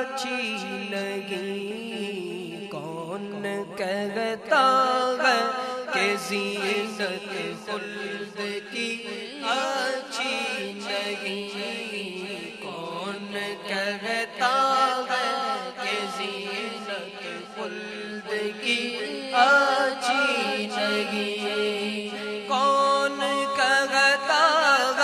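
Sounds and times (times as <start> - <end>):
boys singing devotional melody: 0.0 - 25.0.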